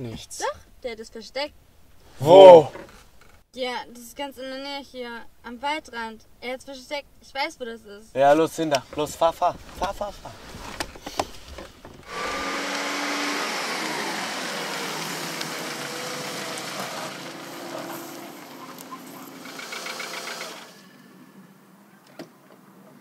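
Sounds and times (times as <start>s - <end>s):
car engine driving off: 11.3s - 21.7s.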